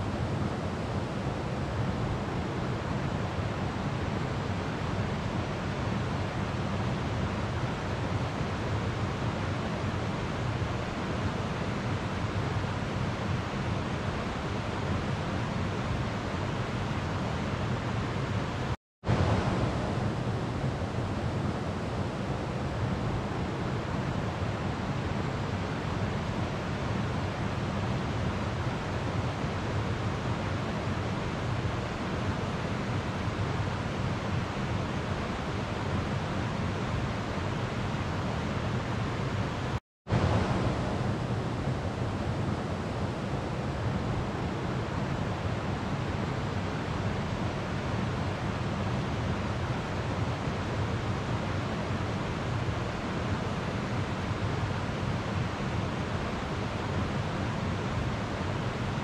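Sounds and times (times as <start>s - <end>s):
river water rushing: 40.1s - 58.9s.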